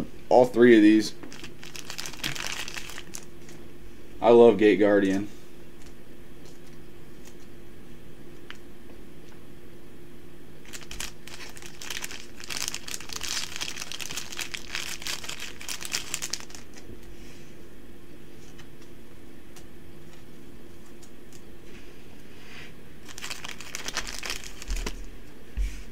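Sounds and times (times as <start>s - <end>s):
plastic crinkling: 1.2s - 3.6s, 10.6s - 16.9s, 23.0s - 25.1s.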